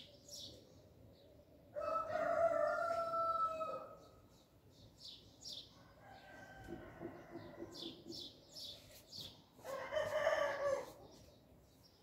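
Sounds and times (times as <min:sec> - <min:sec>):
small birds chirping: 0:00.0 - 0:01.4, 0:03.9 - 0:12.0
rooster crowing: 0:01.8 - 0:04.0, 0:09.6 - 0:10.9.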